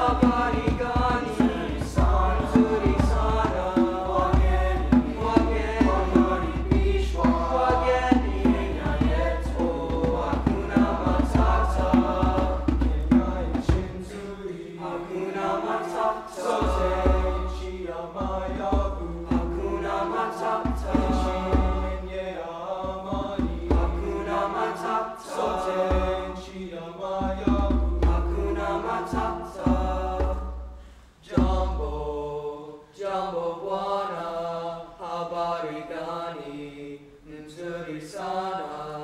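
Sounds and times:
hand drum: 0.0 - 14.1, 18.2 - 22.0, 22.8 - 24.3, 27.2 - 30.6
choir singing: 0.0 - 39.0.

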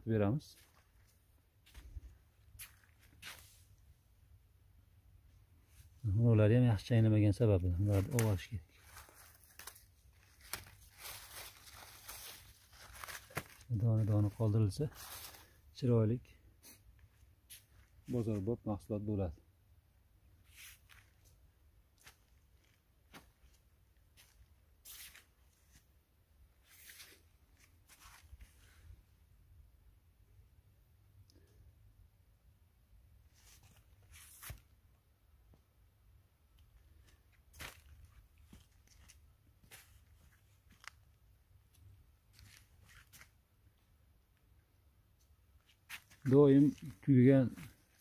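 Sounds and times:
faint rustles or scuffs: 0.5 - 3.9, 7.8 - 15.6, 16.6 - 18.5, 20.4 - 26.0, 26.6 - 29.0, 33.2 - 34.8, 36.7 - 41.1, 41.7 - 43.4, 45.2 - 48.0.

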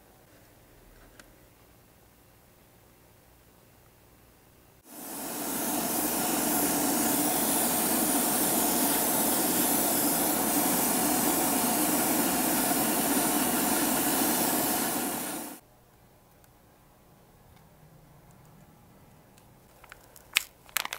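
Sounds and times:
airbrush hiss of compressed air: 4.8 - 15.6
low hum: 4.9 - 15.6.

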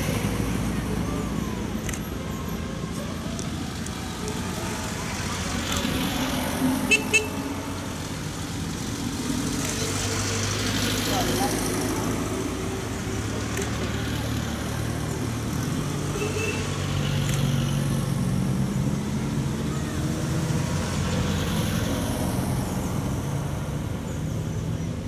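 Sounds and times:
small cars passing: 0.0 - 25.0.

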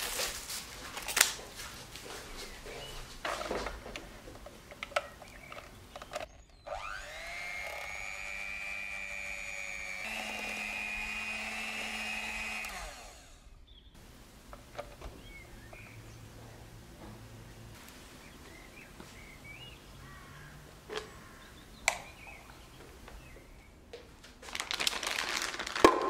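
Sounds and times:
electric hand mixer whirring: 6.1 - 15.5.

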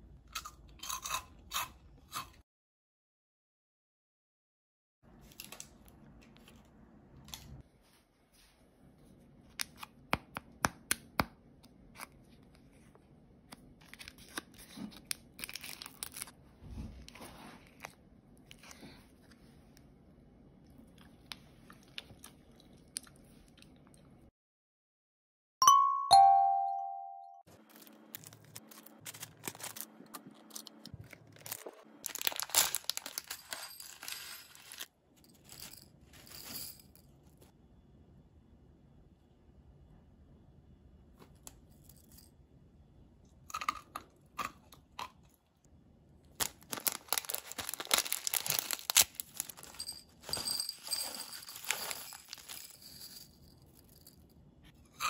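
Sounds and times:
plastic wrapper crinkling and tearing: 13.8 - 16.4, 27.6 - 34.9, 46.3 - 52.7.

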